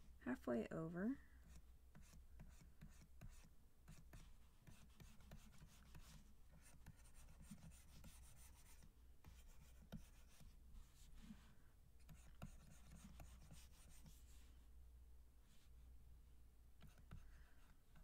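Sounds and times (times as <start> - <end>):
stylus scratching on drawing tablet: 1.4 - 14.5, 16.8 - 18.0.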